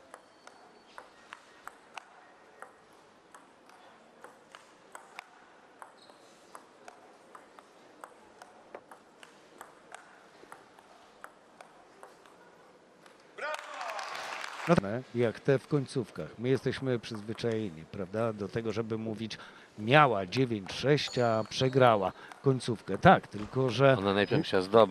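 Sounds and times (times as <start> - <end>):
table tennis ball ticking: 0.0 - 12.4.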